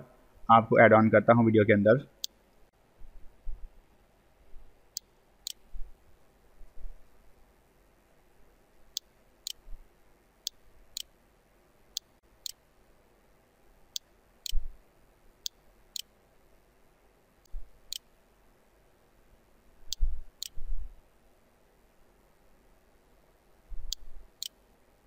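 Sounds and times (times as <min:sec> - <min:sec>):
computer mouse clicking: 0:05.0 - 0:05.6, 0:23.9 - 0:24.6.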